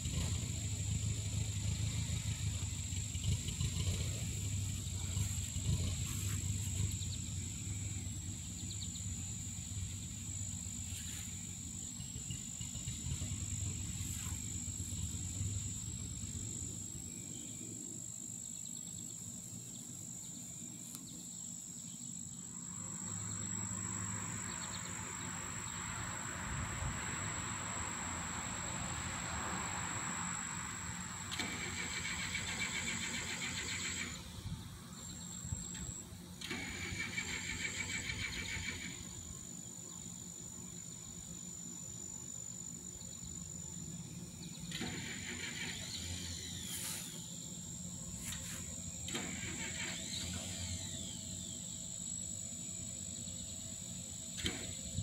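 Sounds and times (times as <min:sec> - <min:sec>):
fast pulsing buzz: 0:00.0 - 0:55.0
low hum of distant traffic: 0:00.0 - 0:55.0
thin high-pitched whine: 0:00.0 - 0:55.0.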